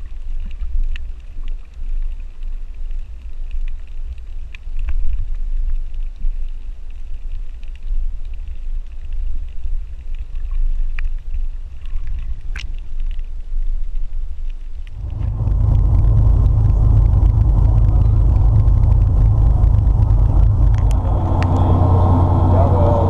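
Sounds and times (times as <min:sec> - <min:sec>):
faint clicks: 0:00.0 - 0:21.8
muffled underwater rumble: 0:00.0 - 0:23.0
boat engine humming: 0:14.9 - 0:23.0.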